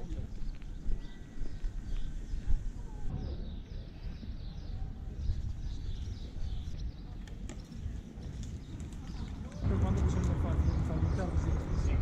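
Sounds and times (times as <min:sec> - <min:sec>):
wind buffeting microphone: 0:00.0 - 0:12.0
bird chirps: 0:00.3 - 0:09.6.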